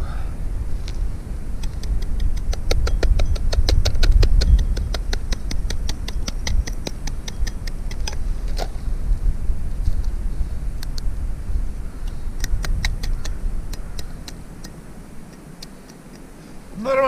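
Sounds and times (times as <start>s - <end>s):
wind rumble on microphone: 0.0s - 17.0s
rapid even clicking: 1.6s - 8.2s, 12.1s - 16.3s.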